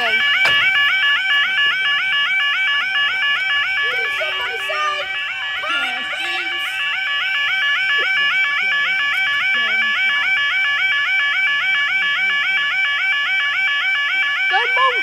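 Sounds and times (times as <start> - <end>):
level crossing alarm warbling: 0.0 - 15.0.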